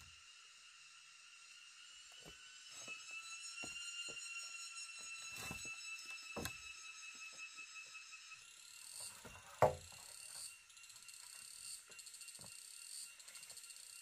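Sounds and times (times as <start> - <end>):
insects chorus: 0.0 - 14.0
wood knocks: 9.2 - 9.9.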